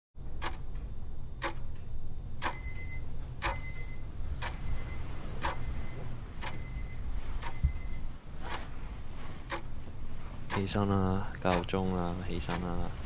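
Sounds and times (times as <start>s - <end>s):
alarm clock ticking: 0.4s - 0.6s, 2.4s - 8.1s, 10.5s - 10.9s, 11.5s - 11.8s.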